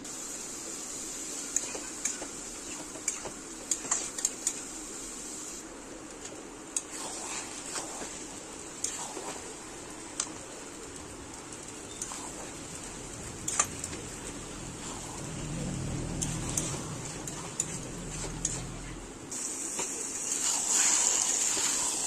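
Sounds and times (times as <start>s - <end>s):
mushrooms sizzling in a wok: 0.0s - 3.0s, 7.7s - 17.9s.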